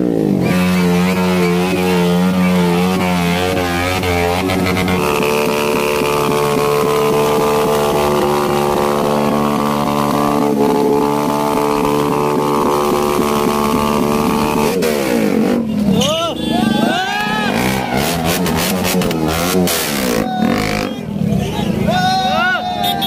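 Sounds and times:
motorcycle engine running: 0.0 - 15.8.

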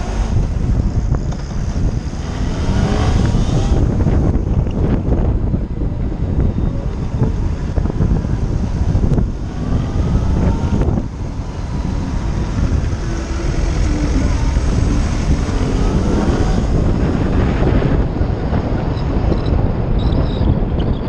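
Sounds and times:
motorcycle engine rumble: 0.0 - 21.0
wind buffeting microphone: 0.0 - 21.0.

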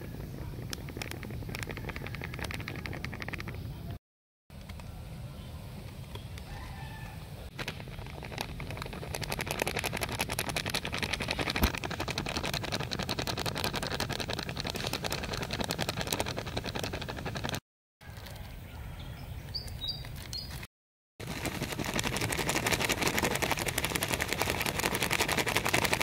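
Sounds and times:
plastic bag crinkling: 0.1 - 3.7, 7.5 - 17.6, 21.2 - 26.0.

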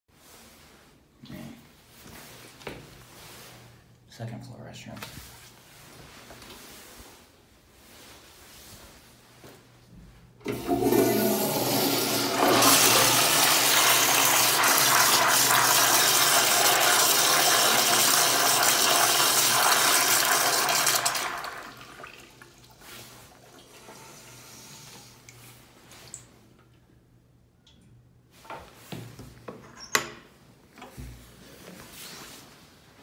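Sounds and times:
toilet flushing: 10.4 - 25.4.

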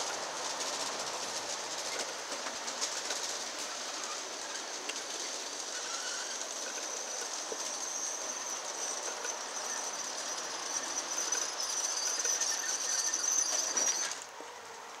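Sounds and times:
model train rolling on track: 0.0 - 15.0
high-pitched whine: 5.7 - 14.2.

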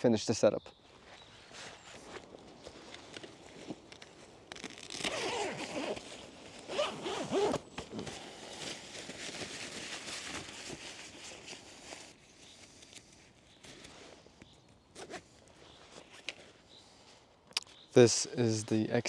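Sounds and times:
tent fabric rustling: 1.0 - 17.0
tent door zipper: 4.6 - 8.4.

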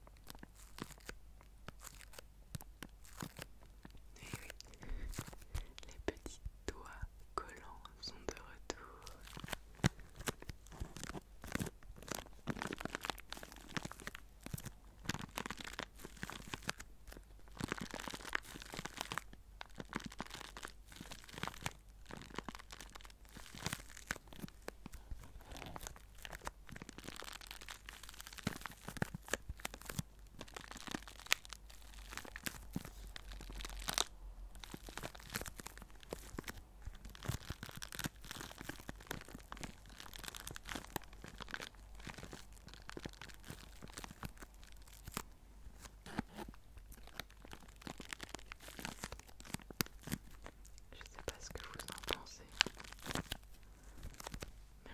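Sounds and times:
plastic bag crinkling: 0.0 - 6.4, 8.0 - 54.9.

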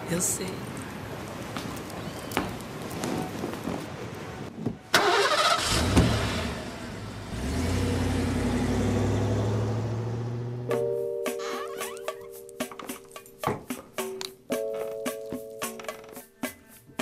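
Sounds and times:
car engine starting and droning: 4.9 - 10.8.

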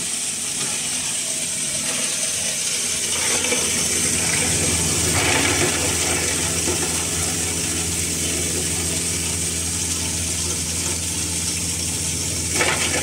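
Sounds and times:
hammer mill grinding: 0.6 - 13.0.

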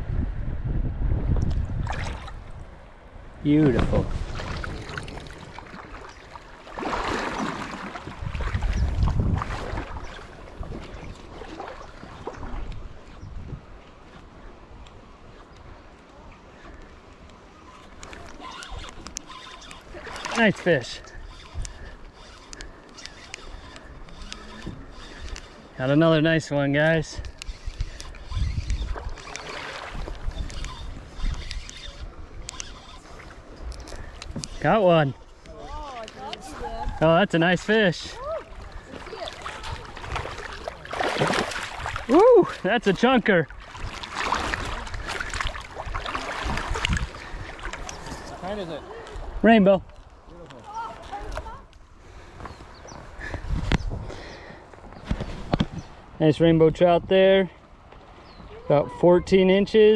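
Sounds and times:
wind rumbling on microphone: 0.0 - 16.6, 26.4 - 37.0, 38.1 - 42.6, 43.5 - 59.3
river water flowing: 1.7 - 55.1
fishing reel clicking: 18.0 - 25.8, 27.0 - 34.6.

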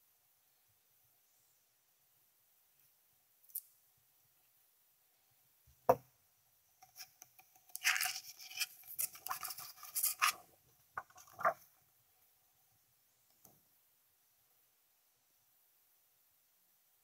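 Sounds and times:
plastic disc scraping and rubbing: 6.9 - 11.7.

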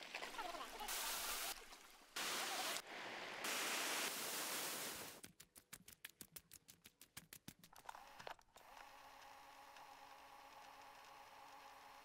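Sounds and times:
rushing hiss: 0.8 - 1.6, 2.2 - 5.2.

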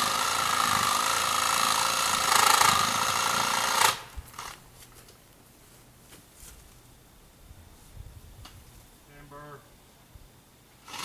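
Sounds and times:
power tool motor whining: 0.0 - 4.6, 10.8 - 11.0.

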